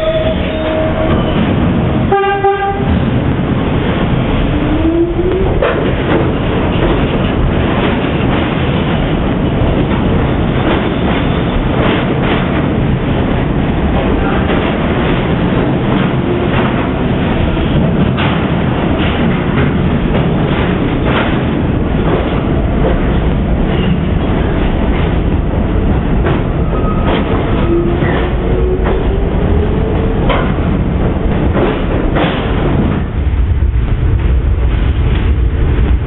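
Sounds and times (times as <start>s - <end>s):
train wheels rumbling on rail: 0.0s - 36.0s.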